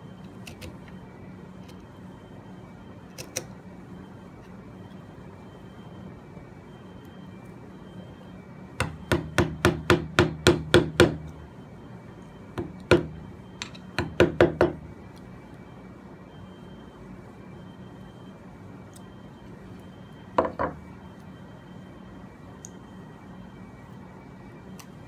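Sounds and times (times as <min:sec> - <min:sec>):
hammer striking chisel: 0:08.8 - 0:11.2, 0:12.6 - 0:14.8.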